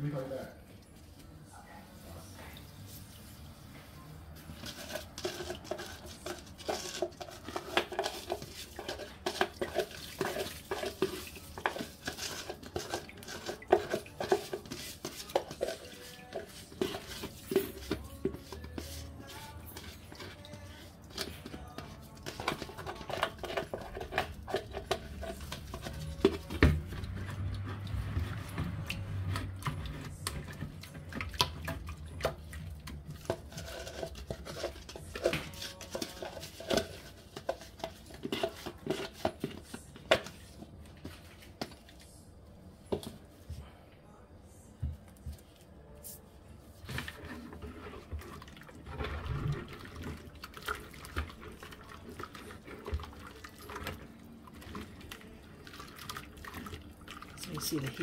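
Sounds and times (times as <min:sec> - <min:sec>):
stirring liquid in bucket: 0:02.0 - 0:43.6, 0:46.6 - 0:58.0
spatula tapping plastic tub: 0:04.6 - 0:27.6.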